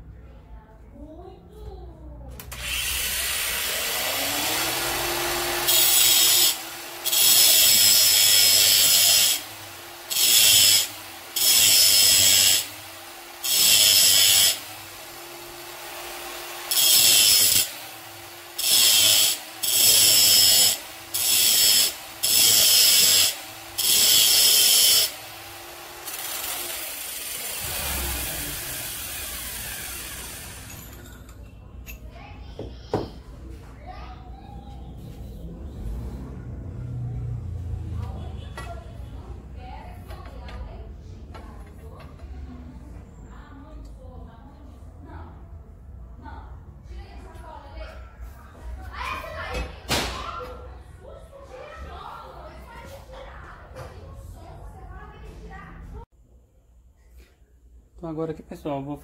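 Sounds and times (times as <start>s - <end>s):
angle grinder grinding metal: 2.5s - 31.3s.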